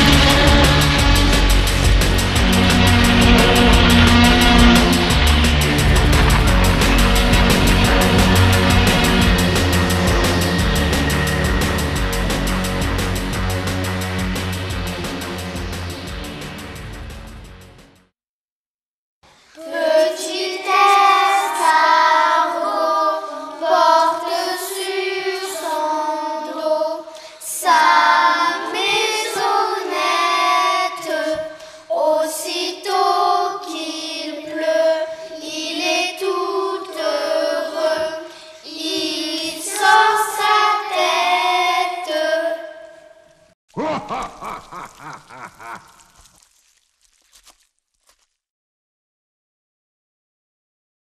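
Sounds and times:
background music: 0.0s - 18.1s
children singing together: 19.5s - 43.1s.

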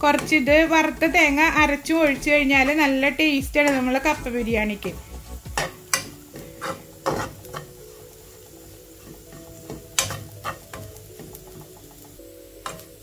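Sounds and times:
soft sizzle of frying: 0.0s - 13.0s
metal spoon scraping a pan: 4.8s - 7.9s, 8.9s - 13.0s.

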